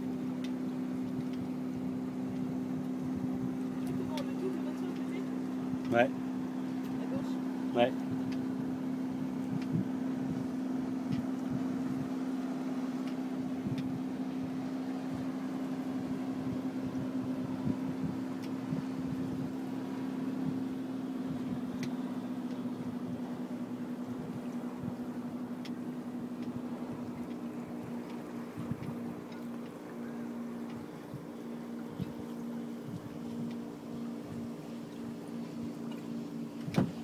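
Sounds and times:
boat engine running steadily: 0.0s - 37.0s
faint ticks: 8.3s - 8.5s, 13.0s - 14.0s, 25.6s - 25.8s.

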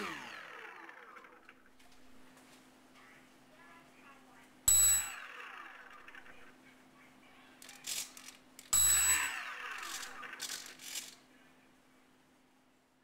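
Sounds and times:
electric motor propeller whine: 0.0s - 1.6s, 8.9s - 10.4s.

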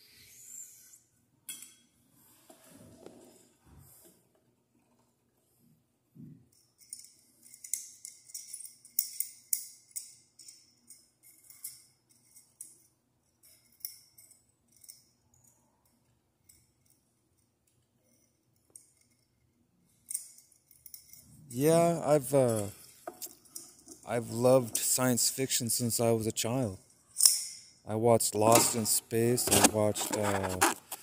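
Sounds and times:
small parts clicking and clinking: 6.4s - 26.0s, 26.6s - 27.8s, 28.4s - 31.0s.

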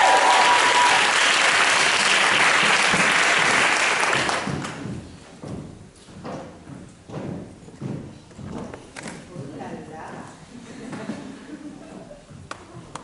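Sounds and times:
audience applauding: 0.0s - 4.8s
high heel steps on stage floor: 4.2s - 11.2s.

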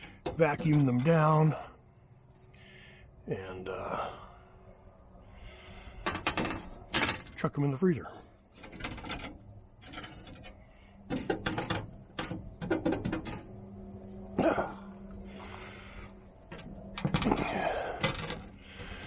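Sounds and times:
faint low hum: 0.0s - 19.0s
metal wire racks rattling: 8.5s - 13.7s, 16.5s - 19.0s.

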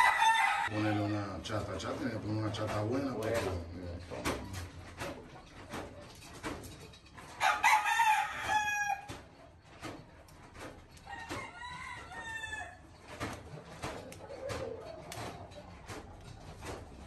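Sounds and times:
rooster crowing: 0.0s - 1.0s, 7.4s - 9.1s, 11.0s - 12.8s.

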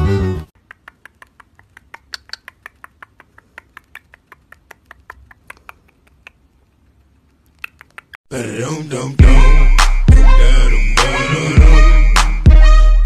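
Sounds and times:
bird beak clicking: 0.6s - 8.2s
loud music: 8.4s - 13.0s.

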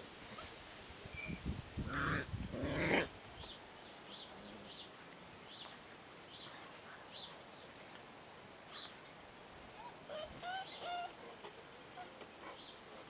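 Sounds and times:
puppies crying out: 9.8s - 11.2s.

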